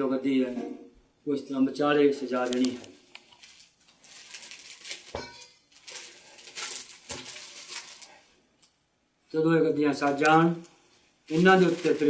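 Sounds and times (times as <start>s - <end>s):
cushions rustling: 11.3s - 12.0s.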